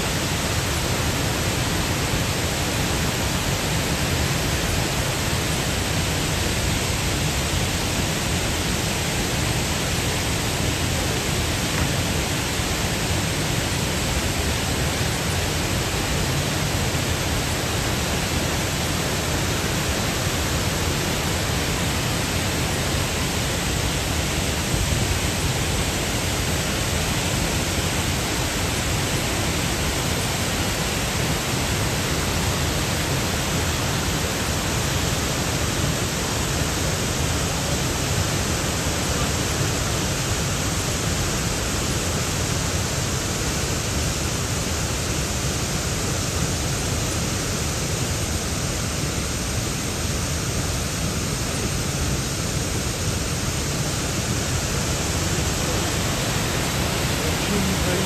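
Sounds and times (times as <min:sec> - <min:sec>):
waterfall roaring: 0:00.0 - 0:58.0.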